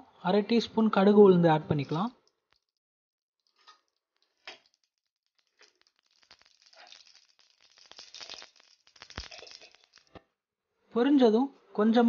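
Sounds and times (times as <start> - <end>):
mustard seeds popping in hot oil: 1.8 - 2.8, 3.4 - 10.2.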